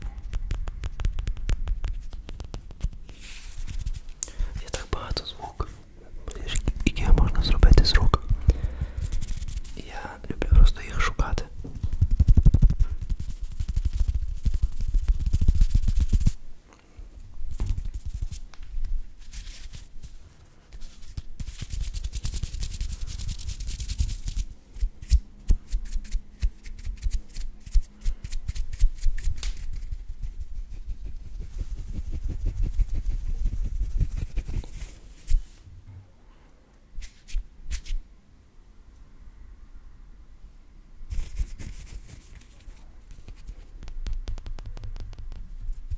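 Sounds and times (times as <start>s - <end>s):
fingertip clicks: 0.0s - 3.2s, 43.2s - 45.9s
hands rubbing on microphone: 0.0s - 5.8s, 6.4s - 16.4s, 17.5s - 18.5s, 19.2s - 27.8s, 28.5s - 35.6s, 41.1s - 45.9s.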